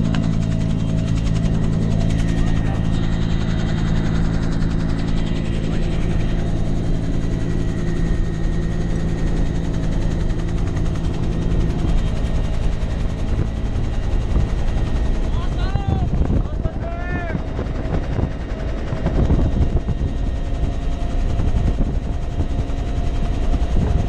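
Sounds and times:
helicopter engine and rotors drone: 0.0 - 24.0.

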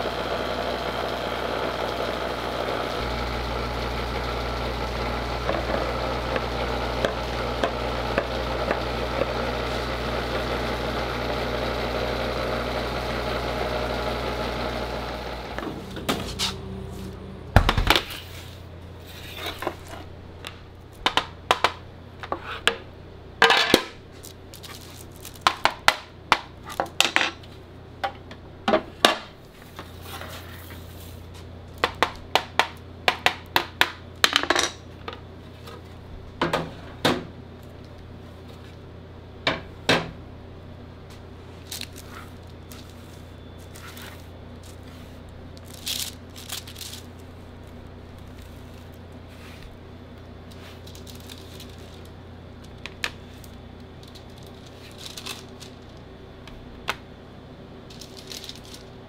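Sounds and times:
chocolate bars clattering: 23.4 - 27.4, 41.6 - 49.0, 50.4 - 56.1, 57.9 - 59.0.

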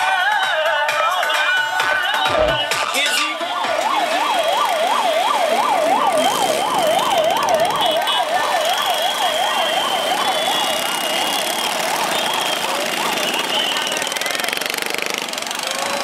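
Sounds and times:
ambulance siren yelping: 2.3 - 14.6.

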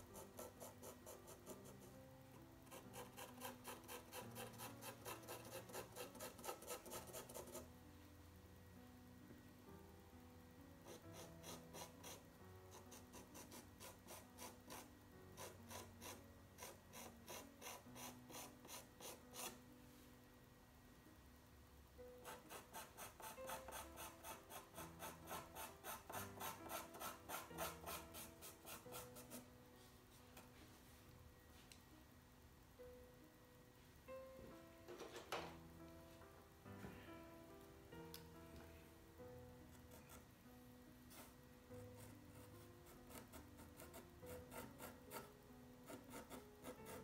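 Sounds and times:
pencil scratching on paper: 0.0 - 7.7, 10.8 - 19.6, 22.2 - 29.5, 39.7 - 40.4, 41.1 - 47.0
faint background music: 0.0 - 47.0.

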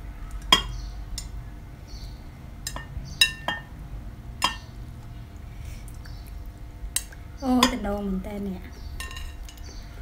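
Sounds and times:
metal spoon clinking on ceramic bowl: 9.0 - 9.6.

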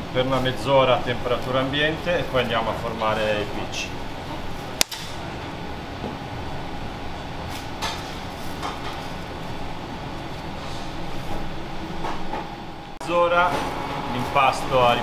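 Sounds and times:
kitchen ventilation rumble: 0.0 - 15.0
sharp click: 4.8 - 5.2.

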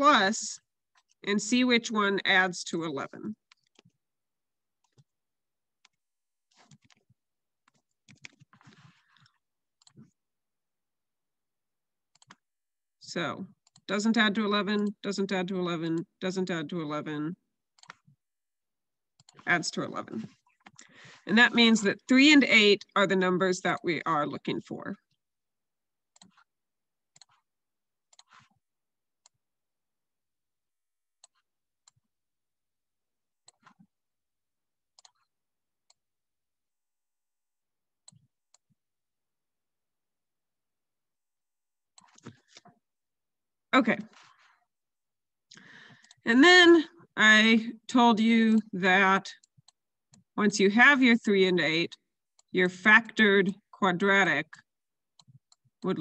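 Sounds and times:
typing on computer keyboard: 5.8 - 8.6, 12.2 - 12.4.

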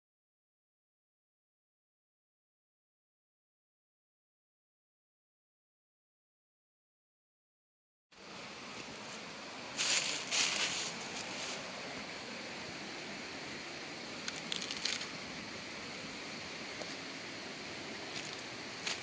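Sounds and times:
shallow stream rushing: 8.2 - 19.0
dry leaves crackling underfoot: 8.7 - 15.2, 17.9 - 19.0.

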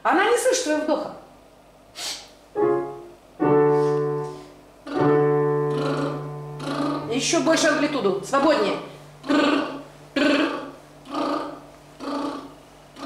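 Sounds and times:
person breathing: 2.0 - 2.3
digital piano chords: 2.6 - 10.9.

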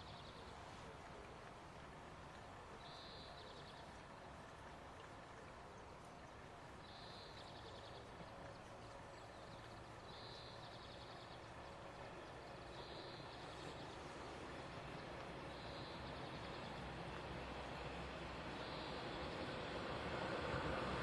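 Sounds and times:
distant electric train rumble: 11.4 - 21.0.

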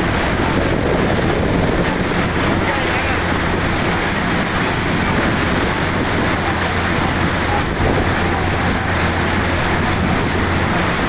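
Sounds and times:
low engine hum: 0.0 - 11.0
water splashing against bus: 0.0 - 11.0.

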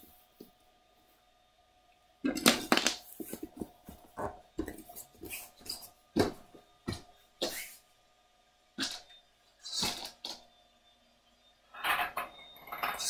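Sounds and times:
plastic bricks clattering on wood floor: 2.4 - 3.6.

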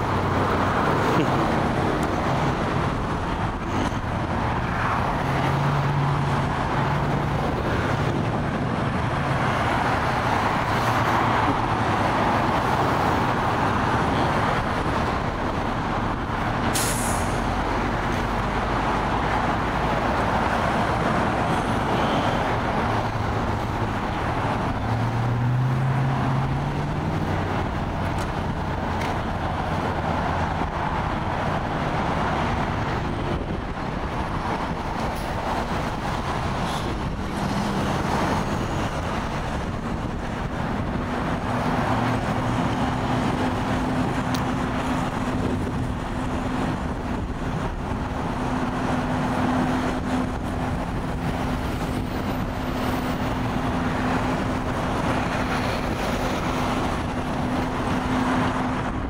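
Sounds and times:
road traffic: 0.0 - 59.0
truck engines running: 0.0 - 59.0
air brake hiss: 16.8 - 17.4.

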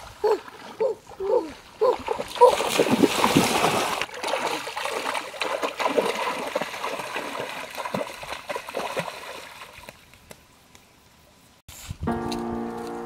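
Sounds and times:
feet wading through water: 0.0 - 10.2
hands slapping water: 2.0 - 10.4.

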